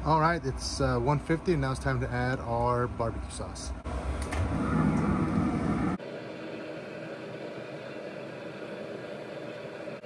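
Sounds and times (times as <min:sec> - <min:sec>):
grill fan humming: 0:00.0 - 0:10.0
loud low rumble: 0:03.1 - 0:06.0.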